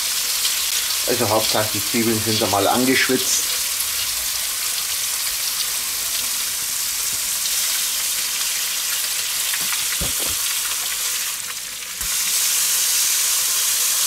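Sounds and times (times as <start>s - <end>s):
food sizzling in grill pan: 0.0s - 14.0s
dull knocks of pan: 9.6s - 10.4s.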